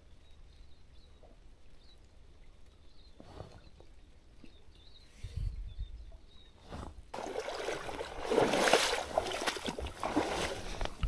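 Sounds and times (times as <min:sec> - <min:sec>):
water splashing in river: 0:07.2 - 0:11.0.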